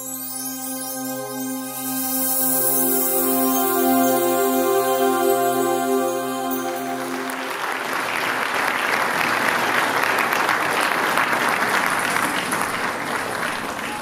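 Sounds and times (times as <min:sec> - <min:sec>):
electronic jingle note: 0:00.0 - 0:08.3
audience applauding: 0:06.5 - 0:14.0.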